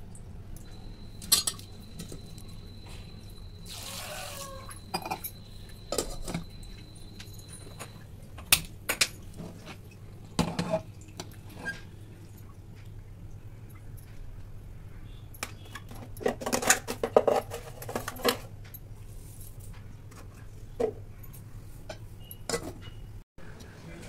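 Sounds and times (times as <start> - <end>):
steel pot and utensil clinking: 1.2 - 2.2, 4.5 - 6.5, 21.9 - 23.0.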